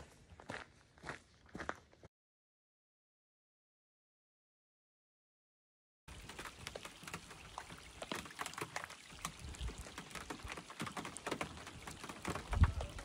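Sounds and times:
small waves lapping on hull: 0:06.1 - 0:13.0.

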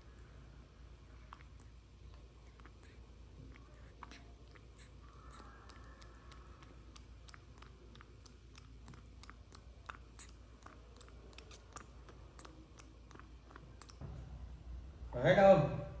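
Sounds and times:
monkey sucking through a straw: 0:01.2 - 0:14.0.

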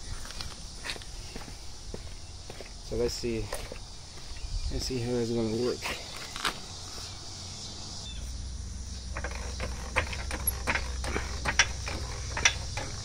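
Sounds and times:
floor jack pumping clicks: 0:09.2 - 0:13.0.

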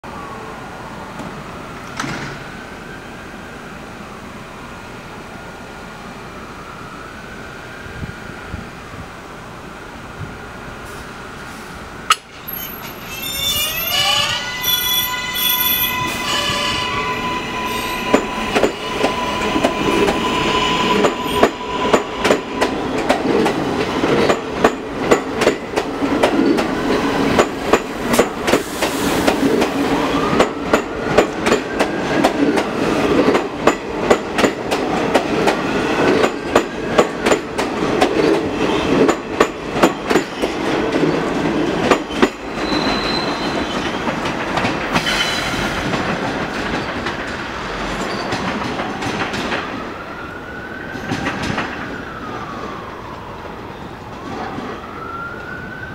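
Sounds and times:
train wheels clicking over rail joints: 0:21.0 - 0:49.7.

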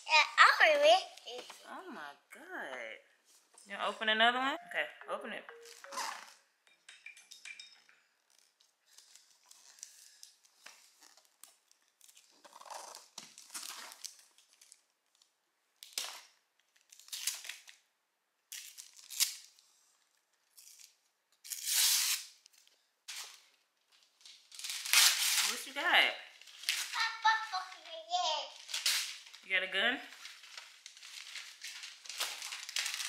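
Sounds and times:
wrapping paper tearing: 0:08.3 - 0:17.8, 0:18.5 - 0:19.7, 0:20.5 - 0:22.4, 0:24.2 - 0:25.8, 0:26.4 - 0:29.4, 0:30.1 - 0:33.0.

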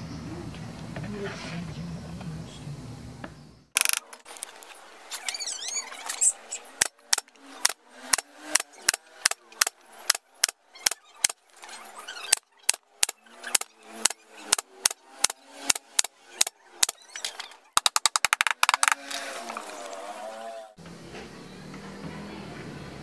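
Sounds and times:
nail gun firing into wood: 0:03.8 - 0:04.2, 0:06.8 - 0:11.4, 0:12.3 - 0:17.0, 0:17.8 - 0:19.2.

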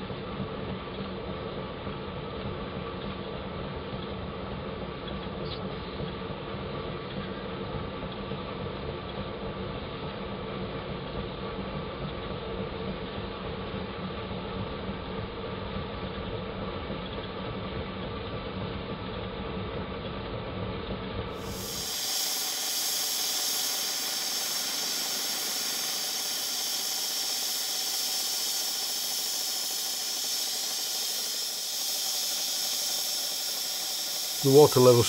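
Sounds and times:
low engine running sound: 0:20.9 - 0:35.0
steam hissing from safety valve: 0:21.4 - 0:35.0.

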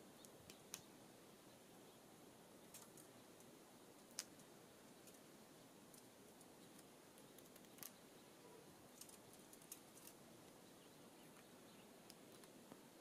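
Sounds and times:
birds pecking seed block clicks: 0:00.2 - 0:00.9, 0:02.6 - 0:05.3, 0:05.9 - 0:08.1, 0:08.9 - 0:10.6, 0:11.3 - 0:12.8.

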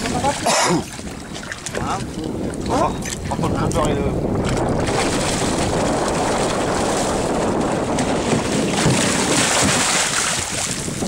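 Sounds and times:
wind noise on microphone: 0:00.0 - 0:11.0
shark splashing water: 0:04.4 - 0:11.0.

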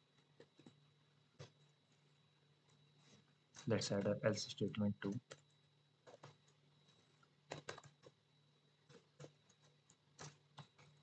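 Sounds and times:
keyboard typing: 0:05.0 - 0:06.6, 0:07.5 - 0:08.2, 0:08.8 - 0:11.0.

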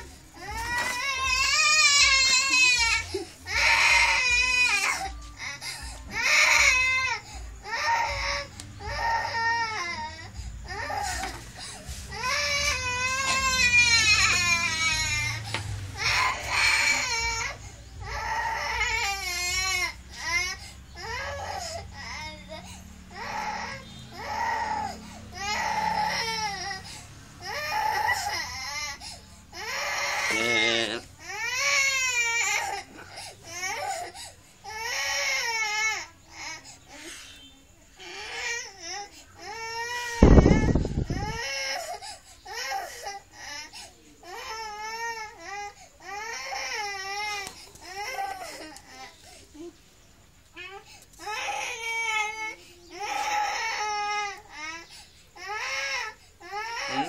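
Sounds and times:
young girl crying: 0:00.0 - 0:36.9, 0:50.6 - 0:57.0
girl crying: 0:00.4 - 0:08.3.

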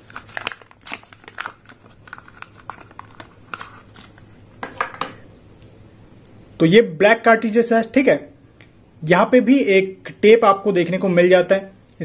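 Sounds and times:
plastic blister pack crackling: 0:00.0 - 0:04.2.

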